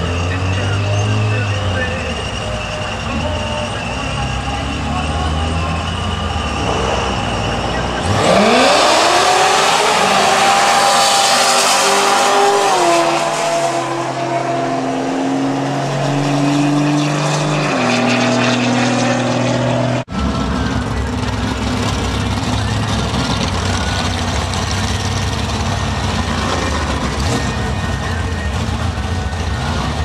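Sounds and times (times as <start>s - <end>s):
idling engines rumbling: 0.0s - 11.0s, 18.1s - 30.0s
race car engines accelerating: 0.0s - 30.0s.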